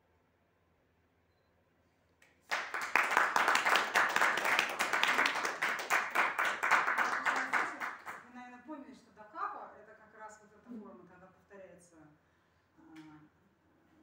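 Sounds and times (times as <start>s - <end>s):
audience applause: 2.4s - 8.2s.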